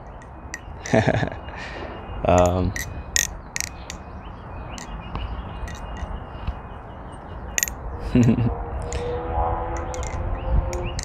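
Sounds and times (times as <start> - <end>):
butterfly knife clacking: 0.1 - 1.0, 2.4 - 4.0, 5.7 - 6.1, 7.6 - 8.4, 9.8 - 11.0.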